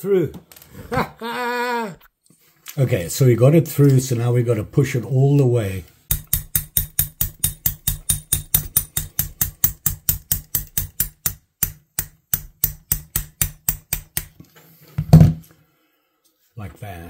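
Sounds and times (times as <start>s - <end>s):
hammer tapping steel pin: 6.1s - 14.4s.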